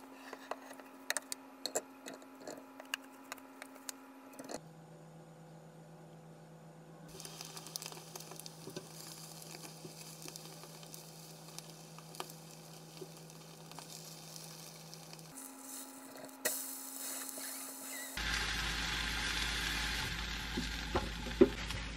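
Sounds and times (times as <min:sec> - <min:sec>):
batter sizzling in frying pan: 0:07.1 - 0:21.9.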